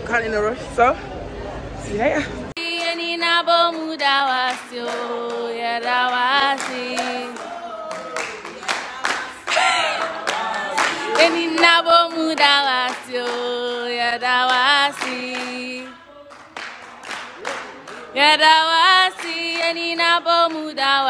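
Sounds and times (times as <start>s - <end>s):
choir singing: 2.6s - 16.3s
hands clapping: 3.6s - 13.8s, 14.4s - 15.7s, 16.3s - 18.2s.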